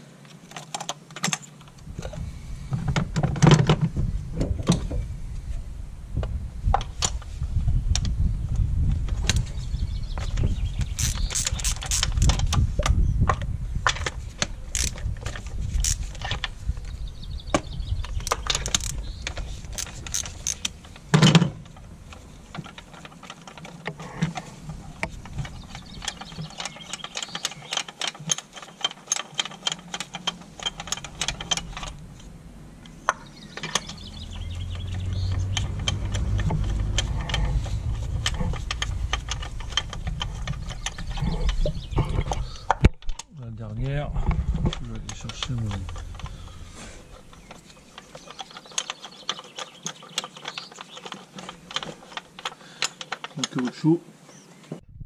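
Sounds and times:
tool handling clatter: 0:09.2 - 0:17.0, 0:18.0 - 0:43.3, 0:44.1 - 0:54.0
ratchet wrench clicking: 0:10.9 - 0:12.5, 0:14.7 - 0:16.4, 0:18.2 - 0:21.0, 0:33.7 - 0:41.3.

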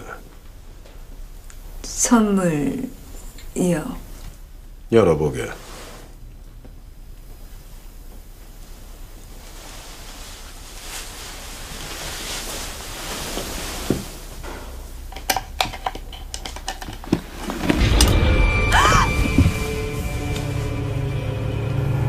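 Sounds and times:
ominous music with deep rumble: 0:17.8 - 0:22.0.

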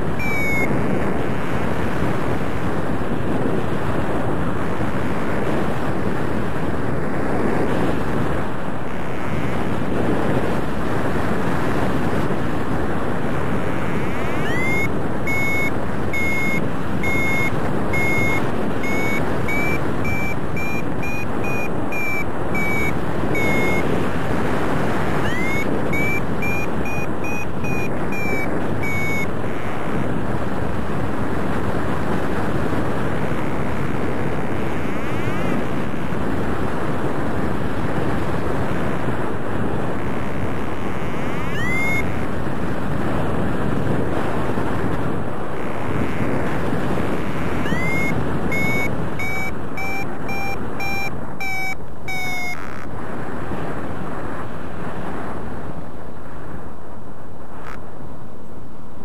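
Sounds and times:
variometer high beeps: 0:00.0 - 0:01.8, 0:08.9 - 0:09.7, 0:13.5 - 0:24.0, 0:25.1 - 0:30.2, 0:33.2 - 0:35.8, 0:40.0 - 0:42.3, 0:45.6 - 0:46.4, 0:47.1 - 0:52.9
wind rushing over microphone: 0:00.0 - 0:59.0.

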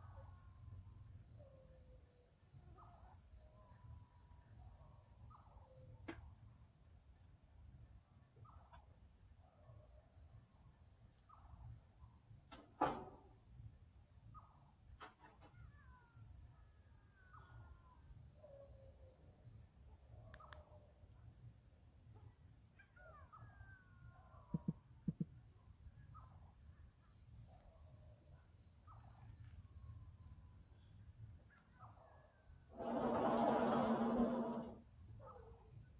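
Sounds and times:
bird calls sliding down: 0:32.8 - 0:34.8.

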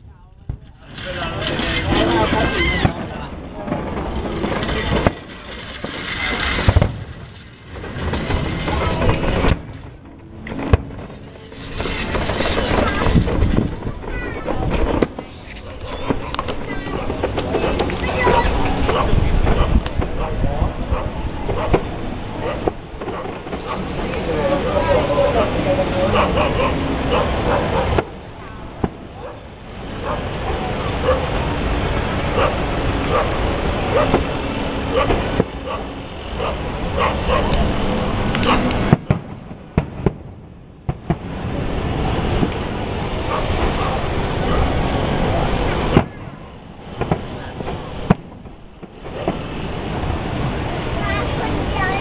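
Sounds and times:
voices: 0:00.0 - 0:07.1, 0:07.7 - 0:40.2, 0:40.9 - 0:52.0
fireworks bangs: 0:00.0 - 0:52.0
fireworks rumbling and crackling: 0:00.0 - 0:52.0
dogs barking: 0:15.6 - 0:21.8, 0:22.4 - 0:23.9, 0:26.0 - 0:28.0, 0:29.2 - 0:31.3, 0:32.3 - 0:34.2, 0:34.9 - 0:37.6, 0:38.4 - 0:38.7, 0:43.2 - 0:44.8
sharp pop: 0:48.1 - 0:49.4.

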